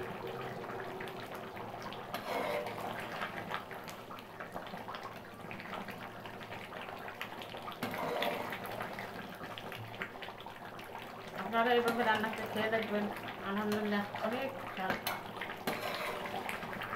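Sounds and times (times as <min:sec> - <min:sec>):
curry bubbling in a pan: 0:00.0 - 0:16.9
ladle stirring: 0:02.0 - 0:03.7, 0:07.6 - 0:09.2, 0:11.7 - 0:16.9.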